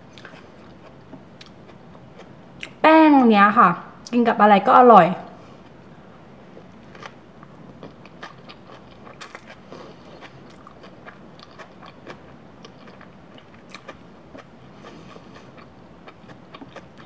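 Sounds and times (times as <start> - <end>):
person chewing food: 0.1 - 2.4, 6.5 - 17.0.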